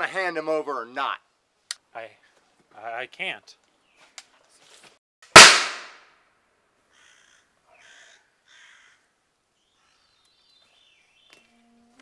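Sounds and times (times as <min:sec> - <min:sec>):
loud bang: 0:05.4 - 0:06.0
bird calling: 0:06.9 - 0:11.6.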